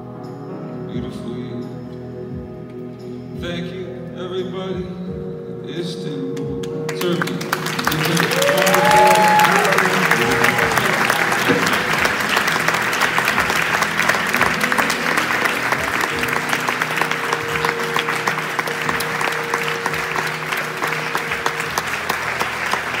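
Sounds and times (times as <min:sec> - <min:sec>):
audience applauding: 0:06.9 - 0:23.0.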